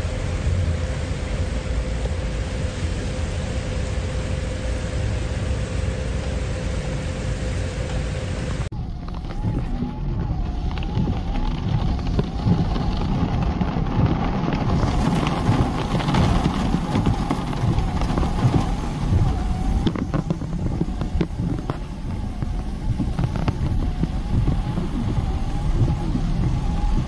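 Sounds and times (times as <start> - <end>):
faint wavering whine: 0.0 - 13.7
car rumbling on wet road: 0.0 - 27.0
rain hiss: 0.0 - 27.0.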